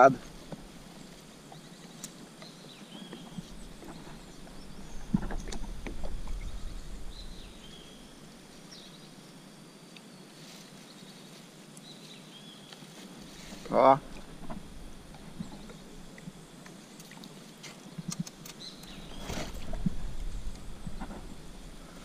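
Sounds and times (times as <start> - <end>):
bird calls: 0.2 - 9.2, 15.2 - 22.0.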